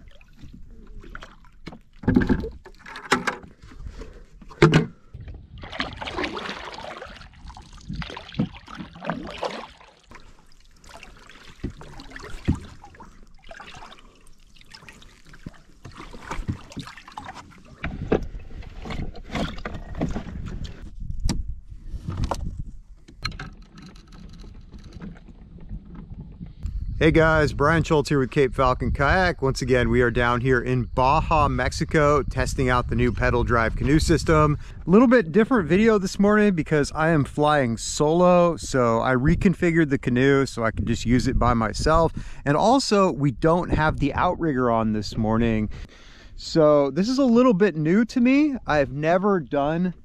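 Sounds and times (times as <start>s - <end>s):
water splashing against canoe: 0.0s - 20.9s.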